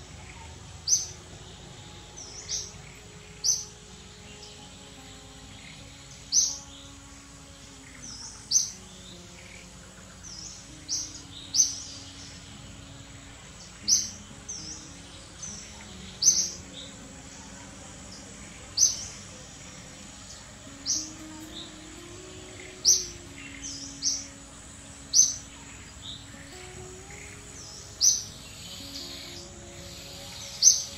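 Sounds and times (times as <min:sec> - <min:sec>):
outdoor background noise: 0:00.0 - 0:30.9.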